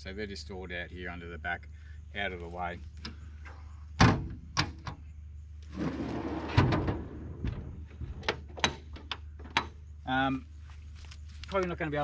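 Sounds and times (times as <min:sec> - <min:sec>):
drawer rolling on runners: 0:05.7 - 0:07.4.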